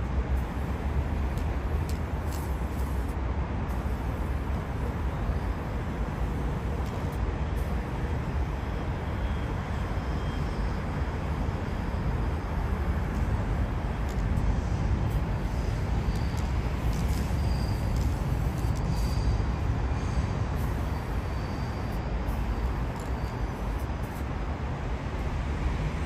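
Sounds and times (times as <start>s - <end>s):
hiss of road noise: 0.0s - 26.0s
low traffic rumble: 0.0s - 26.0s.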